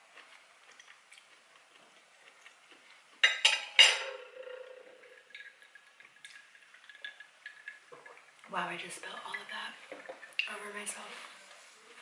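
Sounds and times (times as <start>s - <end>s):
cutlery scraping plate: 3.2s - 4.2s
fork clinking on ceramic plate: 3.2s - 4.6s.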